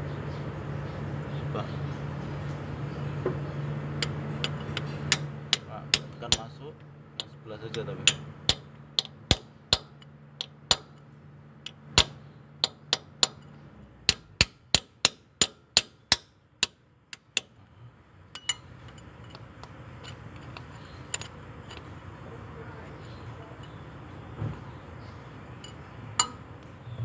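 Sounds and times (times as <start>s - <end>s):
hammer tapping on metal: 4.0s - 6.6s, 7.2s - 11.0s, 11.7s - 13.5s, 14.1s - 17.6s, 25.6s - 26.5s.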